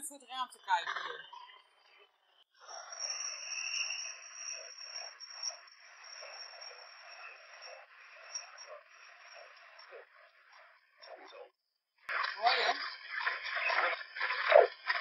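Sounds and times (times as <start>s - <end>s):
indistinct voice fragments: 0.0s - 1.2s
radio static sweeping stations: 12.1s - 15.0s.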